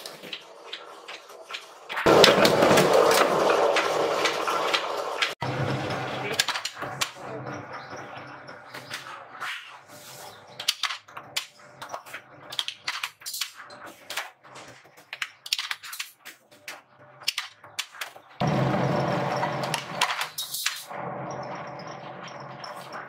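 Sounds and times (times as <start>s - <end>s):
power press humming: 18.4s - 20.1s.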